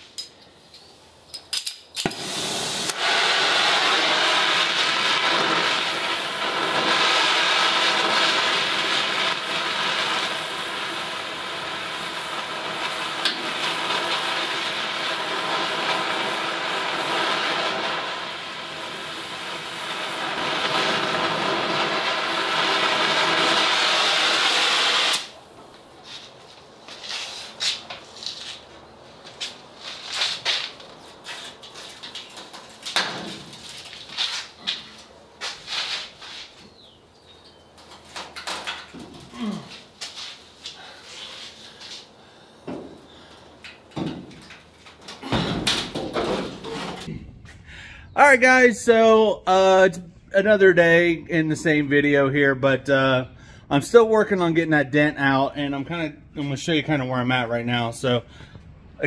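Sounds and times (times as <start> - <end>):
heat tool hissing: 2.1 - 25.3.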